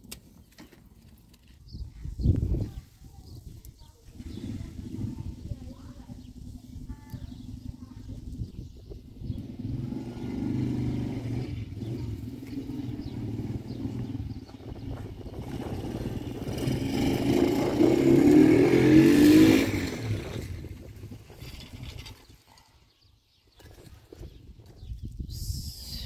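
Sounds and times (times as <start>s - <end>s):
vehicle engine running: 4.1s - 22.1s.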